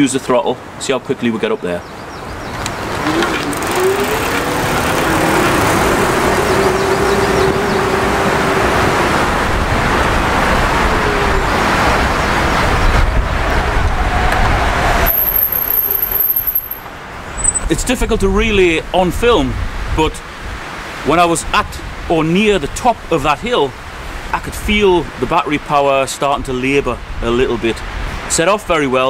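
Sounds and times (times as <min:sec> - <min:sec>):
electric motor whining: 0:02.6 - 0:08.9
loud steady rushing noise: 0:02.6 - 0:17.3.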